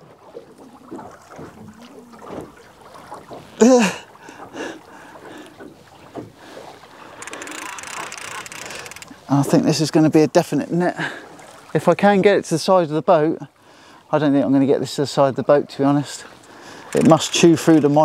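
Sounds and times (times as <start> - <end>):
water lapping at boat hull: 0.0 - 18.0
person exclaiming: 3.6 - 4.0
fishing reel clicks: 7.2 - 9.1.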